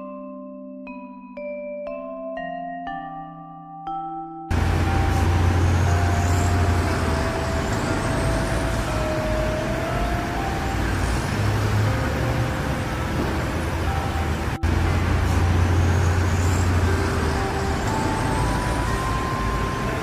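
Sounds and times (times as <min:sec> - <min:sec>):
city street traffic: 0:04.5 - 0:20.0.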